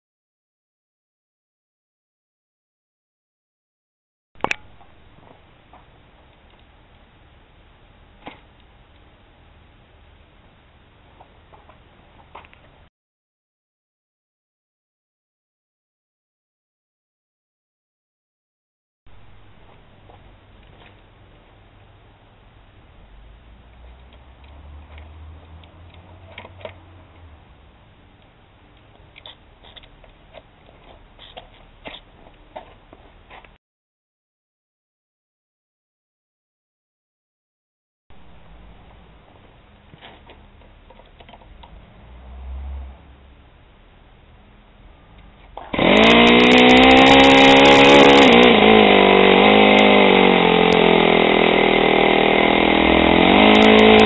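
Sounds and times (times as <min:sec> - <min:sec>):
low hum: 0:04.4 - 0:12.9, 0:19.1 - 0:33.4, 0:38.1 - 0:54.0.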